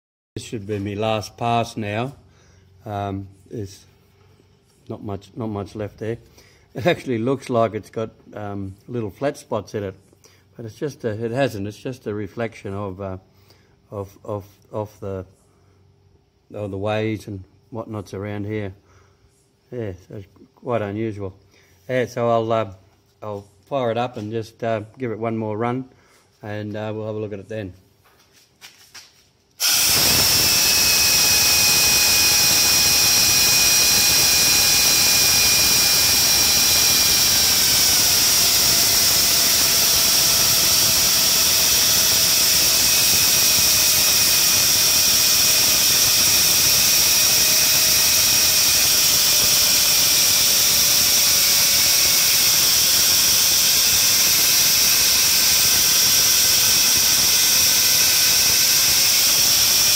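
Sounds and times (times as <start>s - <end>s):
die grinder high whine: 29.6s - 59.9s.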